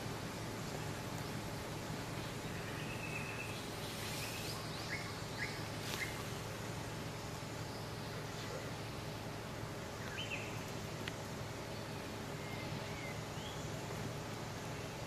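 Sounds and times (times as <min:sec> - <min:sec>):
steady background hiss: 0:00.0 - 0:15.0
bird chirps: 0:02.2 - 0:06.5, 0:10.0 - 0:10.7, 0:11.6 - 0:14.0.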